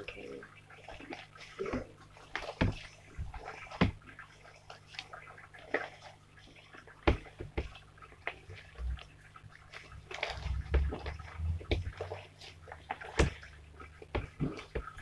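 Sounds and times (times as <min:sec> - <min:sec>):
slime squelching: 0:00.0 - 0:15.0.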